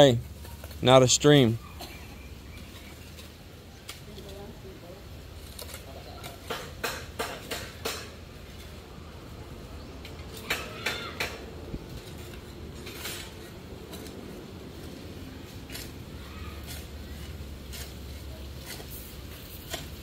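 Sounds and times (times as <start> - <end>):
shovel striking stony soil: 15.5 - 20.0.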